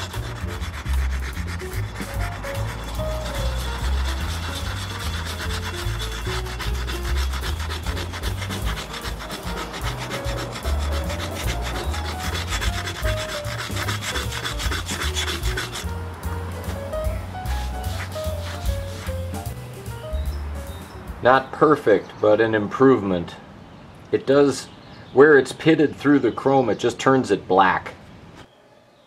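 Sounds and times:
foil scrubbing metal: 0.0s - 19.6s.

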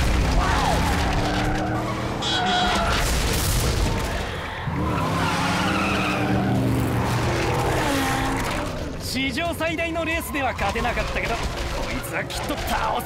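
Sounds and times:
racing car engines: 0.0s - 13.0s
tyres skidding: 0.0s - 13.0s.

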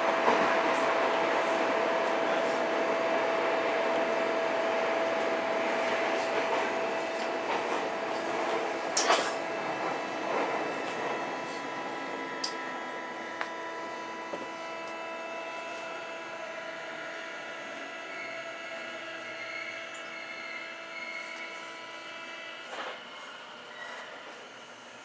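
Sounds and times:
subway car electrical whine: 0.0s - 25.0s
train running noise: 0.0s - 25.0s.

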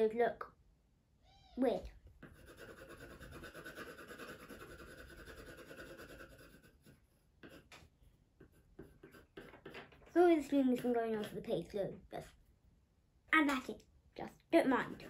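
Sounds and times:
pencil scratching on paper: 2.2s - 11.5s, 14.6s - 15.0s.

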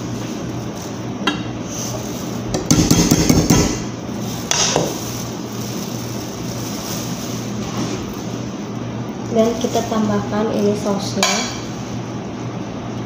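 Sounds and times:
utensil knocking against cookware: 2.6s - 3.8s.

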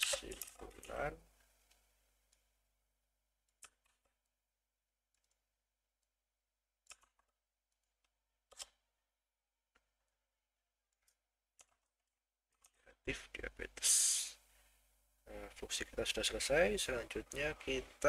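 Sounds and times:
keyboard and mouse clicks: 3.5s - 4.2s, 5.1s - 5.4s, 6.8s - 8.9s, 10.9s - 12.9s.

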